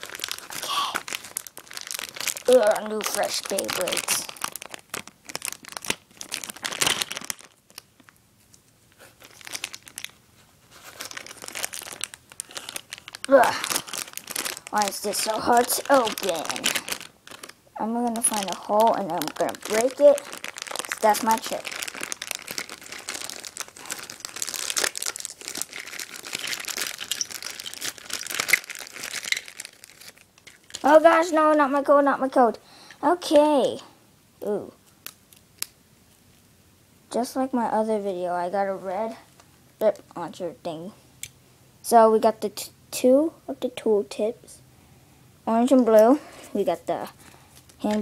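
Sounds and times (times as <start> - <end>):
plastic packaging crinkling: 0.0 - 31.9, 34.8 - 36.4, 45.9 - 48.0.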